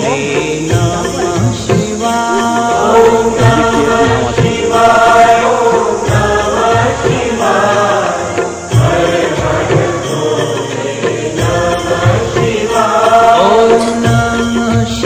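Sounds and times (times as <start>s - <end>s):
group of voices chanting: 2.3s - 10.1s.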